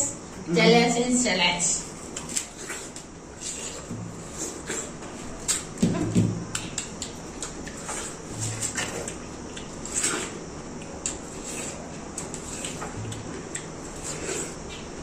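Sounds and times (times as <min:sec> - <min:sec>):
wet biting and slurping: 0:02.1 - 0:05.7, 0:06.6 - 0:10.4, 0:11.0 - 0:14.8.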